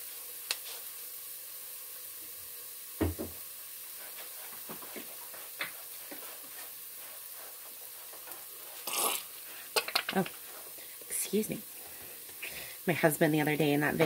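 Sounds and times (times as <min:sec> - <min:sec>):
onions sizzling in a saucepan: 0:00.0 - 0:14.0.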